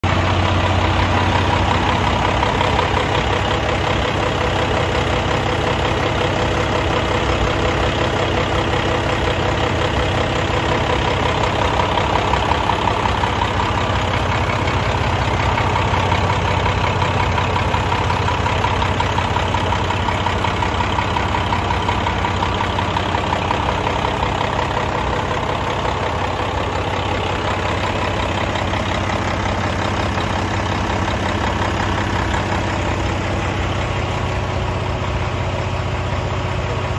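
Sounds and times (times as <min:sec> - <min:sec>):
diesel generator engine running: 0:00.0 - 0:36.9.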